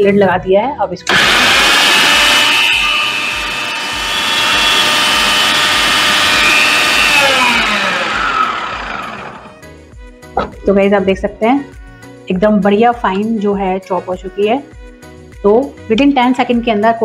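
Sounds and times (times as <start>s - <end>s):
food processor whining: 1.1s - 9.6s.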